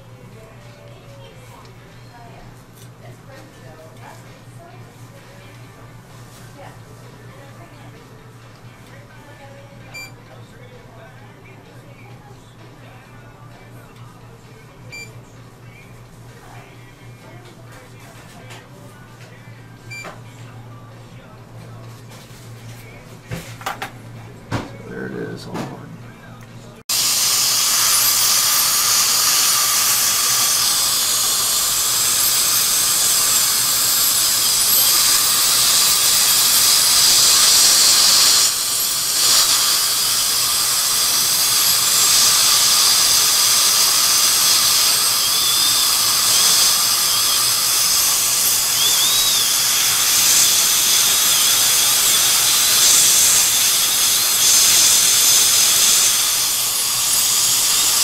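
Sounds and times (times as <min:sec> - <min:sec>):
dental drill whining: 0:26.9 - 0:58.0
suction hiss: 0:26.9 - 0:58.0.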